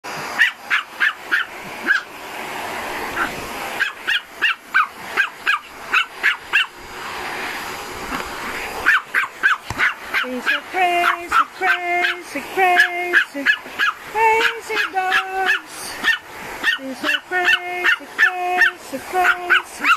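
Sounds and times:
vacuum cleaner running: 0.0s - 19.9s
dog barking: 0.4s - 2.1s, 3.2s - 6.8s, 8.8s - 12.2s, 12.8s - 16.8s, 17.4s - 19.9s.

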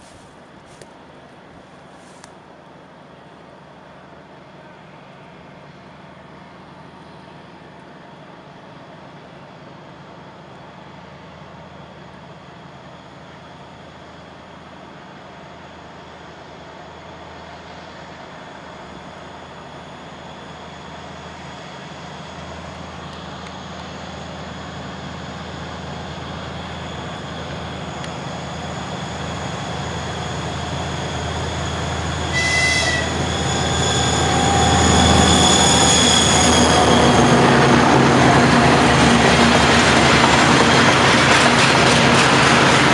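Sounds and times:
train rumbling by: 0.0s - 42.9s
train horn toot: 32.3s - 35.1s.

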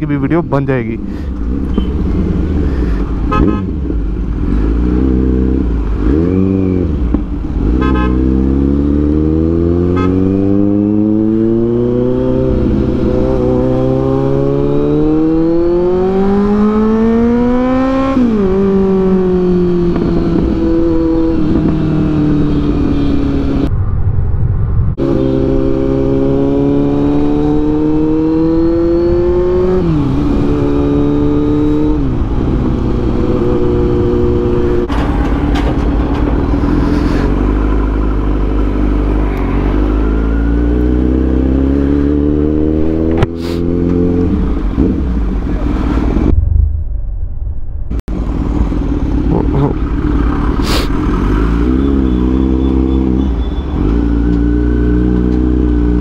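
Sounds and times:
motorcycle engine revving: 1.4s - 23.7s, 24.9s - 35.0s, 36.5s - 56.0s.

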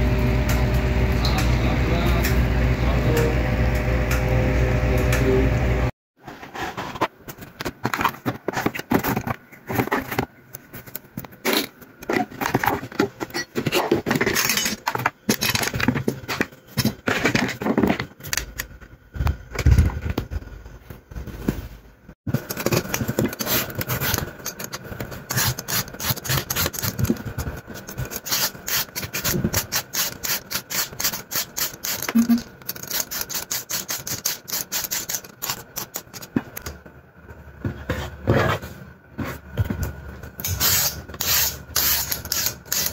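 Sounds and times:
vegetable peeler scraping skin: 22.8s - 27.2s, 27.8s - 36.3s.

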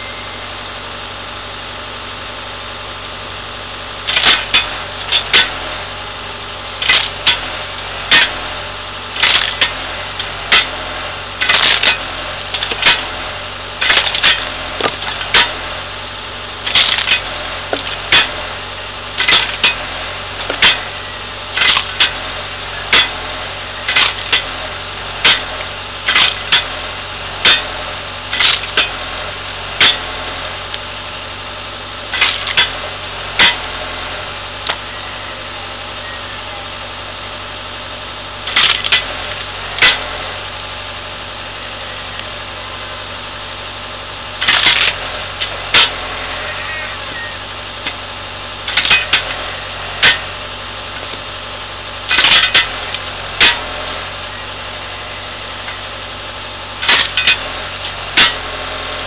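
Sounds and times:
diesel engine running: 0.0s - 59.0s
wood splitter cracking wood: 4.0s - 6.0s, 6.8s - 30.9s, 32.0s - 34.9s, 38.4s - 40.7s, 44.4s - 46.8s, 47.8s - 51.4s, 52.0s - 54.2s, 56.6s - 59.0s.

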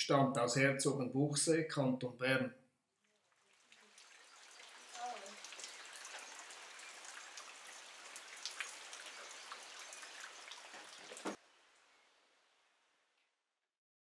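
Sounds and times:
rain falling: 3.1s - 12.9s.

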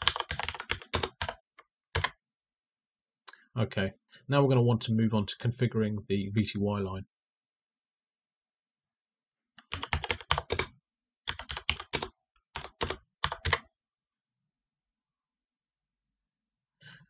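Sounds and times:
computer keyboard typing: 0.0s - 2.2s, 9.6s - 10.7s, 11.3s - 13.7s.

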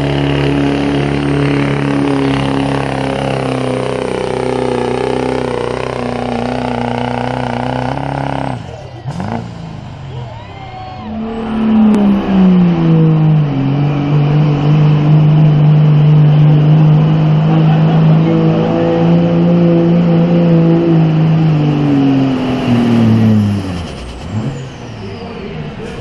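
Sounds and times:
diesel truck engine at full throttle: 0.0s - 26.0s
high turbo whistle: 10.3s - 16.2s, 19.6s - 24.0s.

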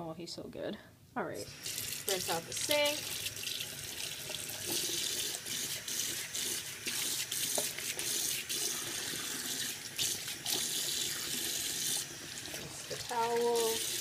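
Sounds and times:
towel rinsed under water: 1.5s - 14.0s
tap running into sink: 6.4s - 8.2s.

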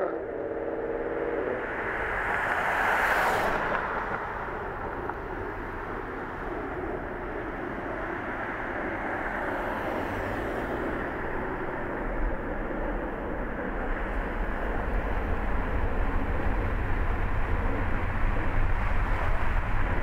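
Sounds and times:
cars driving past: 0.0s - 12.4s.

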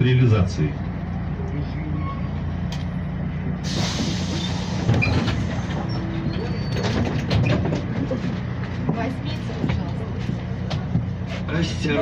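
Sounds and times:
diesel engine idling: 0.0s - 12.0s
compressed air hissing: 3.6s - 4.9s
knocks and clatter: 4.0s - 11.2s.

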